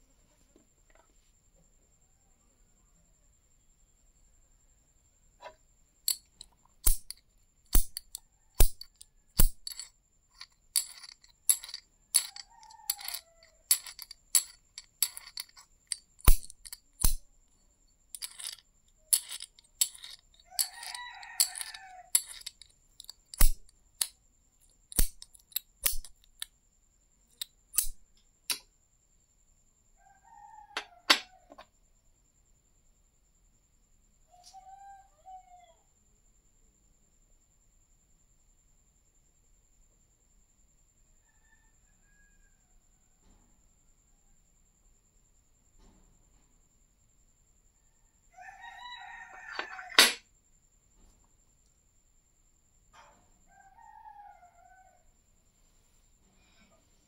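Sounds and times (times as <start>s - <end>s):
magnet tapping metal coin: 6.1s - 17.2s, 18.2s - 24.1s, 24.9s - 26.5s, 27.8s - 28.6s, 49.5s - 50.2s.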